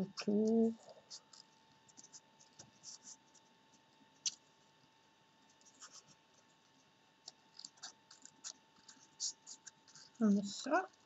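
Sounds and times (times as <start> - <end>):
faint steady hum: 0.0 - 11.0
scissors snipping paper: 7.2 - 11.0.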